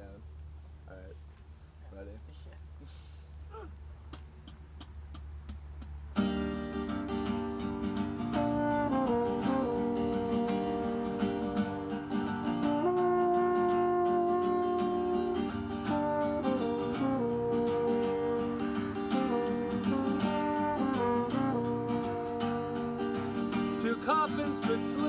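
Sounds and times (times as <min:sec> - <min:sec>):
acoustic guitar strumming: 0:06.1 - 0:25.0
french horn long notes: 0:08.3 - 0:23.8.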